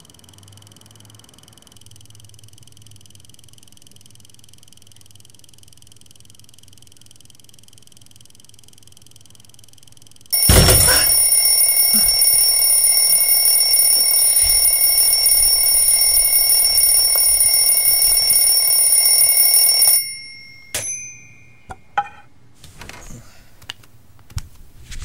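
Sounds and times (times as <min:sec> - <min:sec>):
alarm clock ringing: 0:10.3 - 0:21.9.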